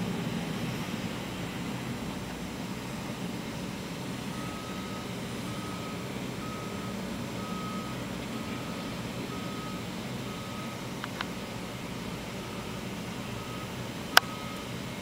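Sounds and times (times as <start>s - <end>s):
low rumble of city noise: 0.0s - 15.0s
vehicle backup alarm beeping: 3.8s - 15.0s.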